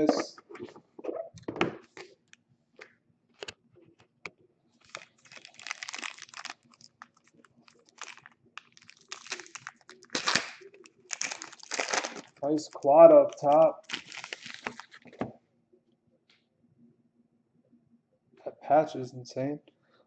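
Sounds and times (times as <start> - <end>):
foil wrapper tearing and crinkling: 4.8 - 15.2.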